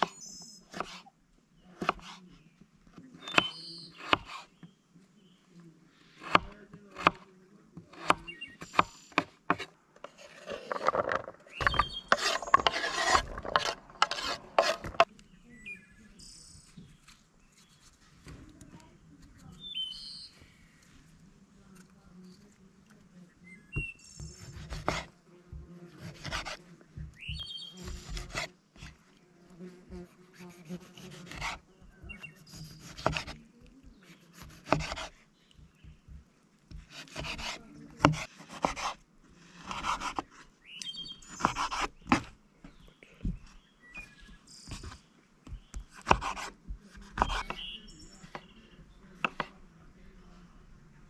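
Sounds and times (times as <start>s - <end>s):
rough scraping and rubbing: 8.7s - 15.1s, 25.9s - 26.6s, 27.7s - 29.0s, 29.7s - 35.2s, 36.8s - 40.5s.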